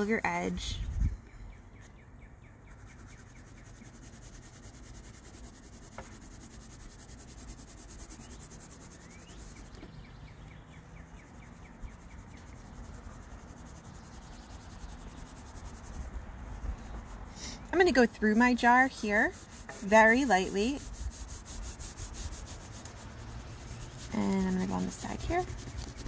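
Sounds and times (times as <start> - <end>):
pencil scratching on paper: 2.7 - 9.9, 11.2 - 26.0.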